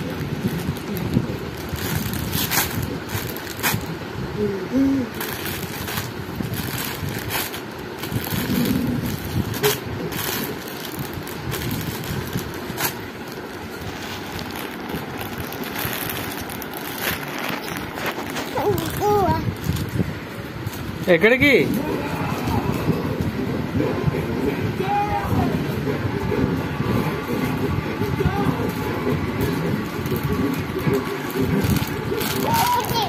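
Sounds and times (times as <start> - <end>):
plastic snack packet crinkling: 5.2 - 19.9, 30.0 - 33.0
child's voice sounds: 18.4 - 19.7, 32.4 - 33.0.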